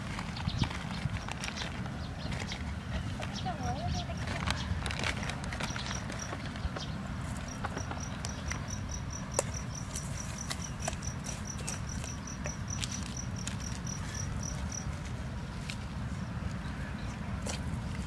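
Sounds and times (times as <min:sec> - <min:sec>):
insect chirping: 0:07.3 - 0:14.9.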